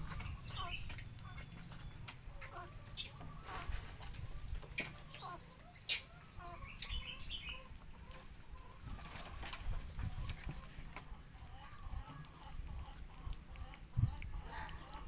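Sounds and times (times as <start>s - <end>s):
low steady rumble: 0.0s - 8.9s
short chirping animal calls: 5.1s - 7.7s.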